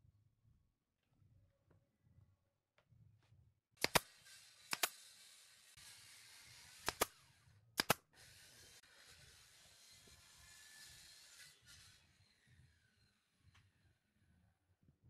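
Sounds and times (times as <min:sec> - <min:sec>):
nail gun firing into wood: 0:03.8 - 0:05.0, 0:06.8 - 0:07.2, 0:07.8 - 0:08.1.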